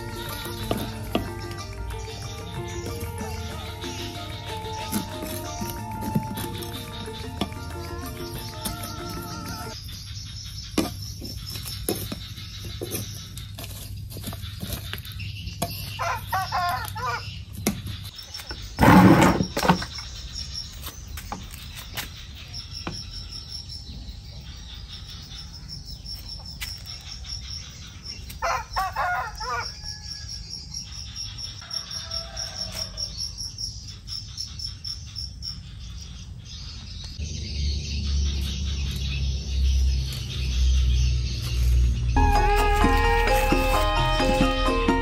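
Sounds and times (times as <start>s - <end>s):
insects chirping: 0.0s - 45.0s
music with low beat: 42.2s - 45.0s.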